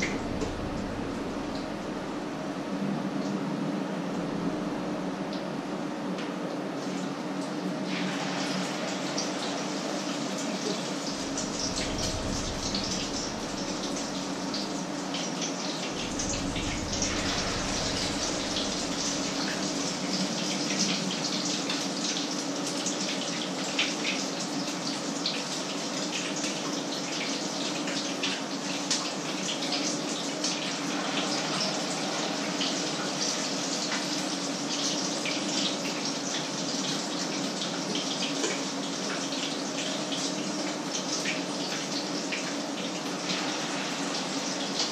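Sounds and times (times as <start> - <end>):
steady hum: 0.0 - 6.0, 7.8 - 21.5.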